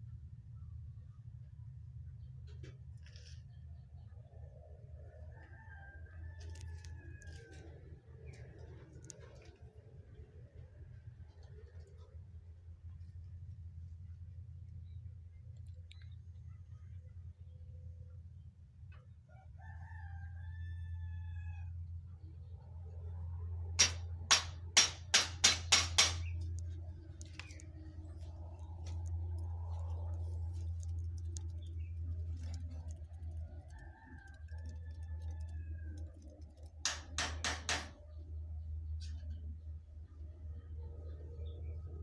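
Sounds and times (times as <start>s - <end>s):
steady low hum: 0.0s - 42.0s
rooster crowing: 5.2s - 7.6s, 19.3s - 21.8s, 33.5s - 36.1s
hand tools knocking on wood: 23.8s - 26.3s, 36.8s - 38.0s.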